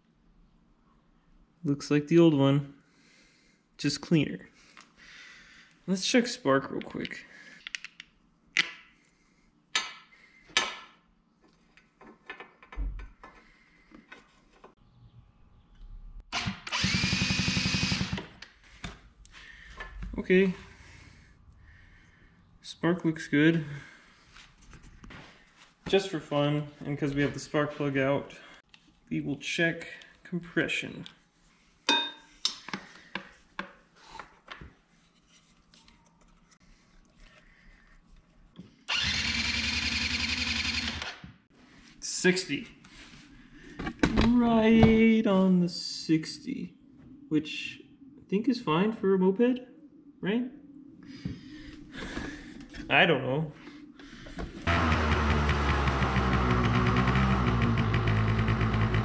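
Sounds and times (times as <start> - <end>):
starter motor cranking engine: 16.4 - 18.4, 38.9 - 41.2, 54.7 - 59.0.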